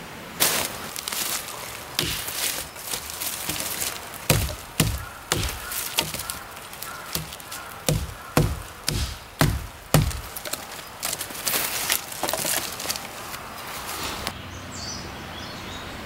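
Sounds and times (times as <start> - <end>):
hatchet chopping wood: 1.9 - 11.2.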